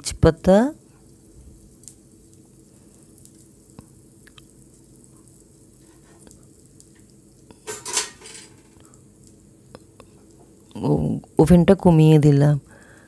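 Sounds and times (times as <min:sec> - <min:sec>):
spatula clinking and scraping in pan: 0:07.6 - 0:08.7
utensil clatter: 0:07.6 - 0:08.8.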